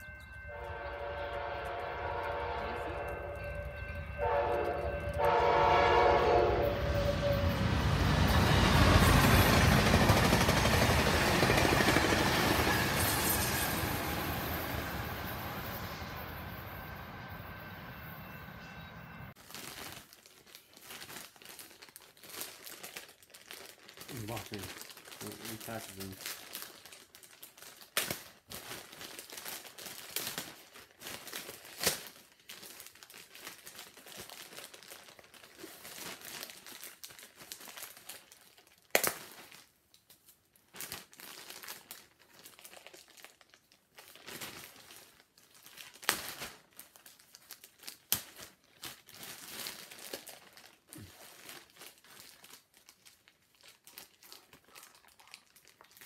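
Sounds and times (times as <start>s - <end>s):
wrapping crinkling and rustling: 19.4s - 56.0s.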